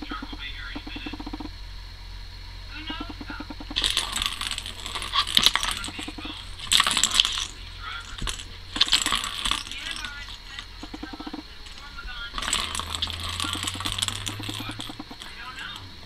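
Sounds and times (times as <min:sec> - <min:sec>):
plastic ball rattling in track toy: 0:03.8 - 0:15.8.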